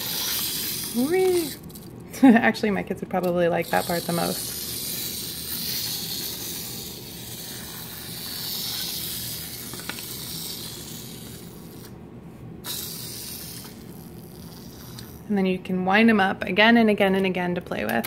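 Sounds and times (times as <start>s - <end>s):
clockwork toy motor whirring: 0.0s - 2.0s, 3.2s - 12.0s, 12.6s - 15.3s.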